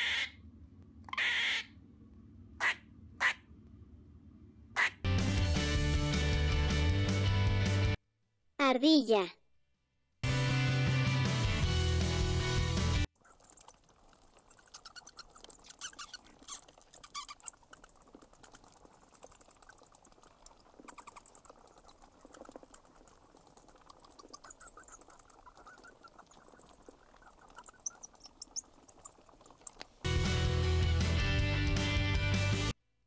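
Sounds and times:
bat squeaks and clicks: 13.3 - 30.0.

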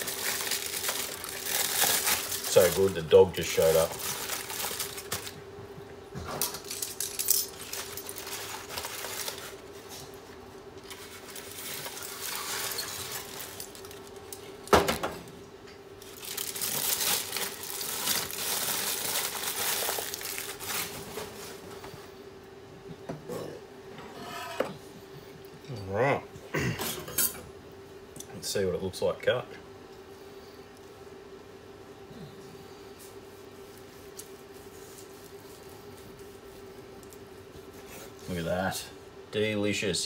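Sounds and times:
aluminium foil crinkling: 0.0 - 5.4, 6.4 - 10.2, 10.8 - 14.5, 16.0 - 21.6
faint steady hum: 0.0 - 40.0.

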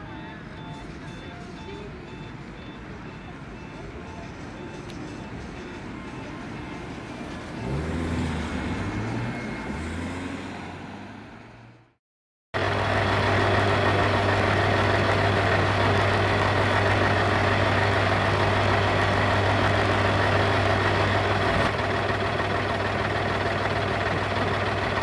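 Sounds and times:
diesel engine idling: 12.6 - 25.0.

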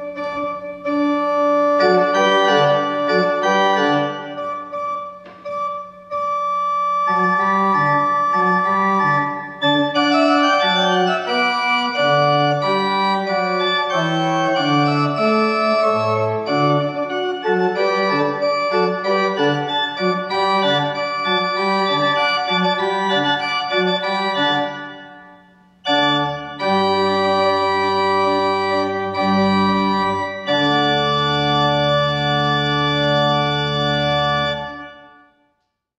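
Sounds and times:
church pipe organ playing: 0.0 - 35.4.

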